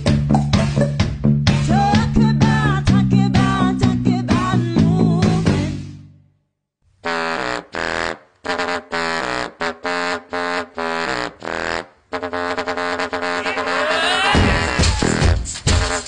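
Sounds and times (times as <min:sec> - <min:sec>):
horn-like wind instrument riff: 0:07.0 - 0:16.0.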